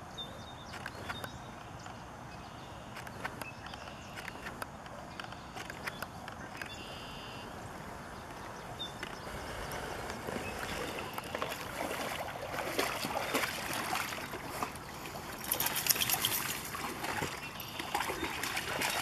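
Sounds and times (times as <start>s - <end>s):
water sloshing and lapping: 7.8s - 19.0s
water splashing and dripping: 10.2s - 19.0s.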